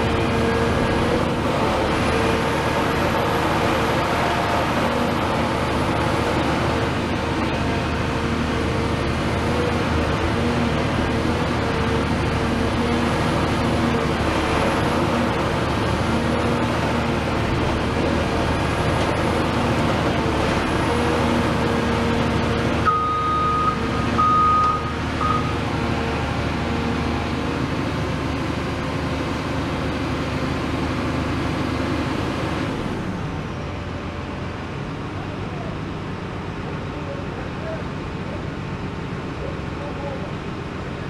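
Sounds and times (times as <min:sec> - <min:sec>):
diesel engine running: 0:00.0 - 0:41.0
loud high beep: 0:22.9 - 0:25.6.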